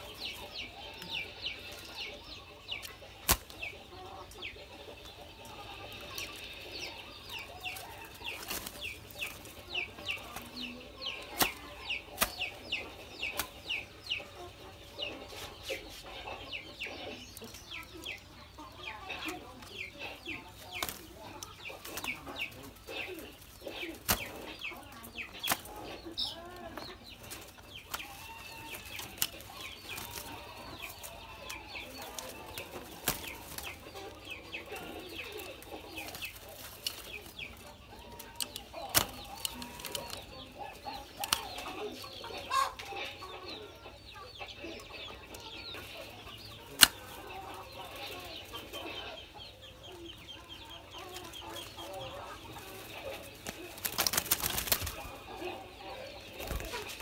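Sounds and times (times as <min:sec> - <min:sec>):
bird calls: 0:00.0 - 0:57.0
doves scuffling in wire cage: 0:00.0 - 0:57.0
wing flapping: 0:31.9 - 0:37.3, 0:53.0 - 0:55.2, 0:56.3 - 0:57.0.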